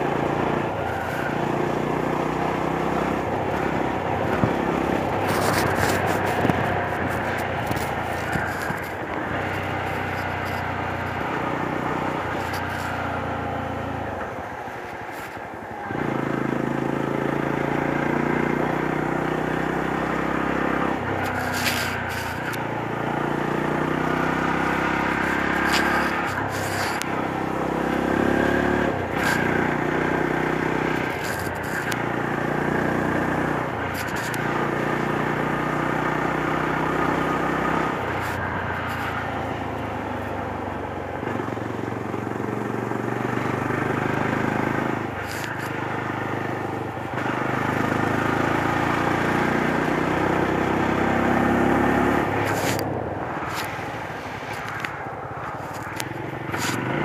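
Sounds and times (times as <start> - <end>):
motorcycle engine and exhaust: 0.0 - 57.0
exhaust crackles: 2.6 - 16.6, 20.8 - 27.2, 30.8 - 32.3, 52.2 - 57.0.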